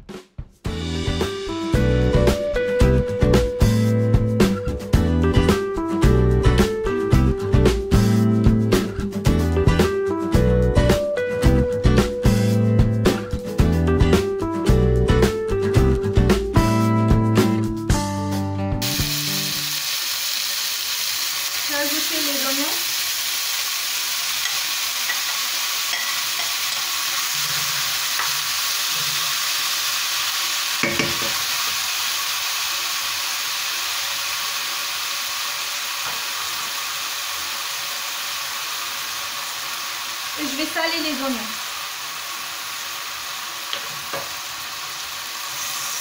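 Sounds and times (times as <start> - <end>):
meat sizzling in oil: 18.8 - 46.0.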